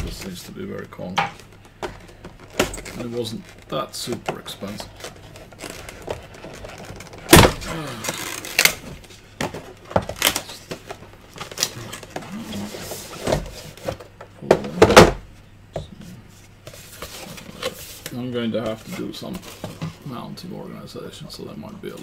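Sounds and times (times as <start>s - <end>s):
box packaging knocks and rustles: 4.0s - 7.7s.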